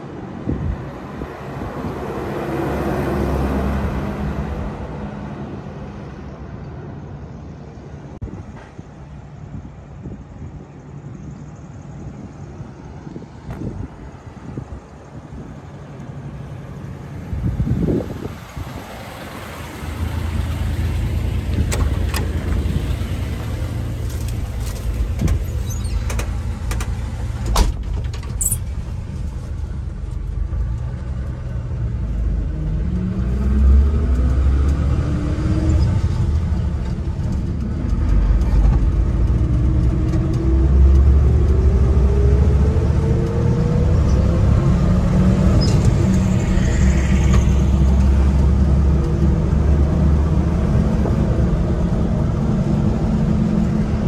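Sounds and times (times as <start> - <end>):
truck engine low rumble: 0.0 - 54.0
sharp clicks and knocks: 24.1 - 28.8.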